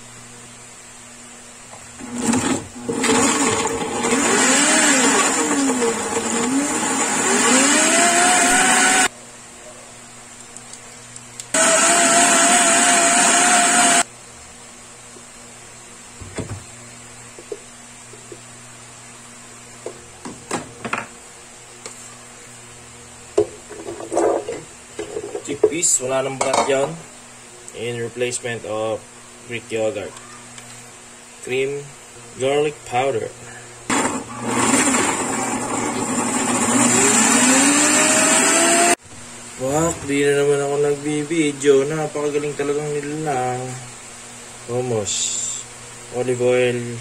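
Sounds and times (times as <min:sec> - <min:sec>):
blender motor whining: 0:02.0 - 0:09.1, 0:11.6 - 0:14.1, 0:33.9 - 0:39.0.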